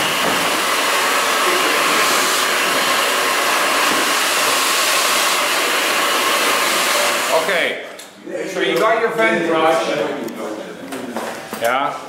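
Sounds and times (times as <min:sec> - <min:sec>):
hair dryer blowing: 0:00.0 - 0:07.7.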